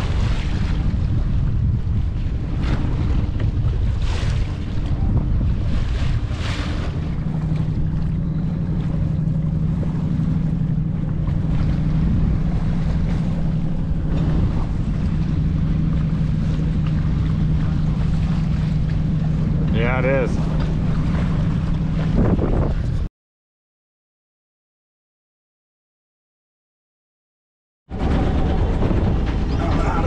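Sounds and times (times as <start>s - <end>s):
steady low hum: 0.0s - 23.1s
water splashing against hull: 0.0s - 23.1s, 27.9s - 30.0s
wind buffeting microphone: 0.0s - 23.1s, 27.9s - 30.0s.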